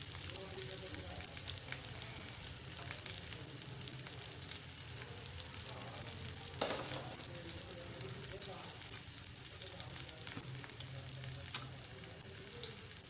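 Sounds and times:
oil sizzling and popping: 0:00.0 - 0:13.0.

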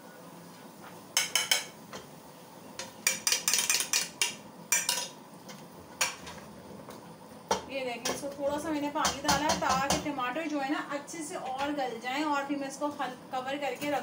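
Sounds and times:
spoons clinking on pot and bowl: 0:01.2 - 0:01.7, 0:02.8 - 0:05.2.

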